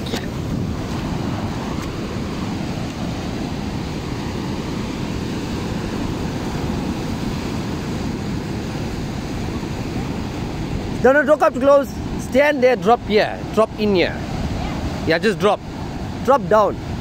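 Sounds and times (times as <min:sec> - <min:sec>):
surf breaking over rocks: 0:00.0 - 0:17.0
wind rumbling on microphone: 0:00.0 - 0:17.0.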